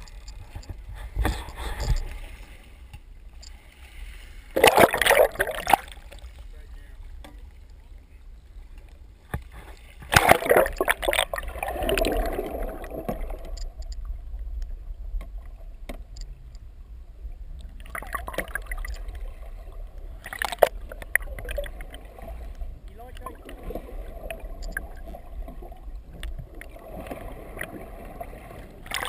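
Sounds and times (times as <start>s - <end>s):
water splashing and gurgling: 0.0s - 8.1s, 9.4s - 29.0s
splashing crackle: 4.5s - 6.4s, 10.0s - 14.1s, 17.6s - 29.0s
steady low rumble: 11.3s - 28.8s.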